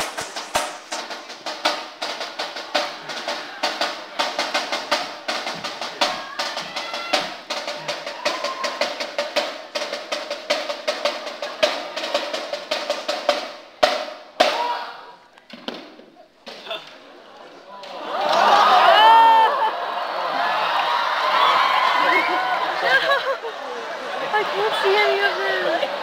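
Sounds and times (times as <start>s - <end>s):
bass drum: 0.0s - 8.6s
snare drum cadence: 0.0s - 11.2s.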